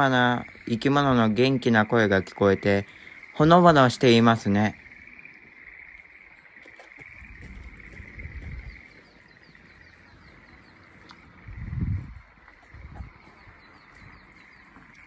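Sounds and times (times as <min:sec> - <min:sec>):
frogs trilling: 0:00.0 - 0:15.0
low rumbling on microphone: 0:07.2 - 0:14.7.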